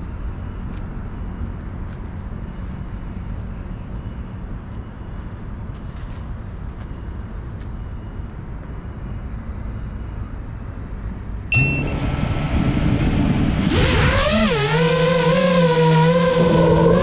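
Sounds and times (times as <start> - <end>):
low outdoor rumble: 0.0 - 17.0
short beep: 11.5 - 12.0
drone motors whining: 11.5 - 17.0.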